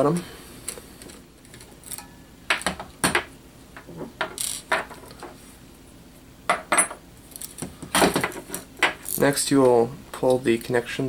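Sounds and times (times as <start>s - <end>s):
tools clattering on wooden table: 2.6s - 5.4s, 6.5s - 7.0s, 7.9s - 9.0s.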